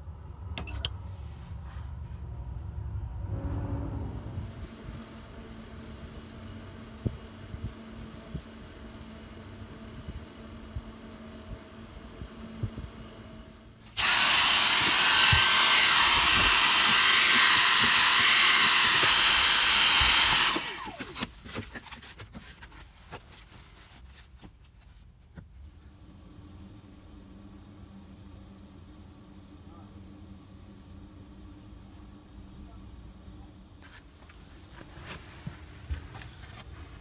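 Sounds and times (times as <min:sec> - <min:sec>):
vacuum cleaner whine: 0:13.9 - 0:21.3
refrigerator compressor hum: 0:25.5 - 0:37.0.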